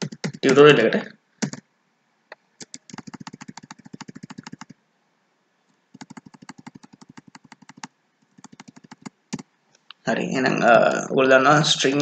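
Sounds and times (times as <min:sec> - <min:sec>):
computer keyboard clicking: 0:00.0 - 0:00.6, 0:01.4 - 0:01.6, 0:02.6 - 0:04.8, 0:06.0 - 0:09.4.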